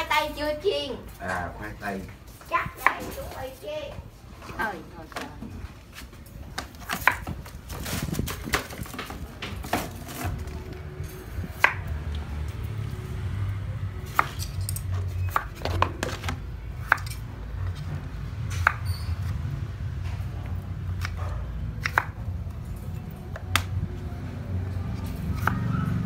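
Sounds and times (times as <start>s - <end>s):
knife chopping on wooden board: 6.8s - 7.4s, 21.0s - 22.2s.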